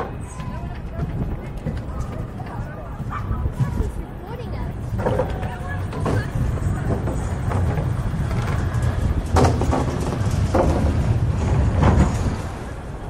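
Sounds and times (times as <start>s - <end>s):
skate wheels rolling: 0.0s - 13.0s.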